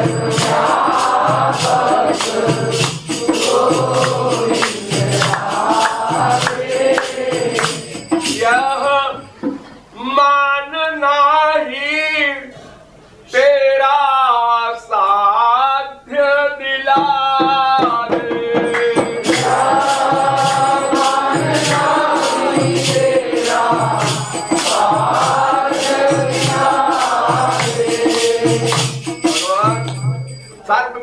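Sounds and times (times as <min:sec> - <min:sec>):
group chorus singing: 0:00.0 - 0:08.8, 0:18.0 - 0:29.2
drum beating: 0:00.0 - 0:09.7, 0:16.9 - 0:30.5
jingling hand percussion: 0:00.0 - 0:09.9, 0:17.4 - 0:31.0
man singing: 0:10.0 - 0:12.5, 0:13.3 - 0:21.8.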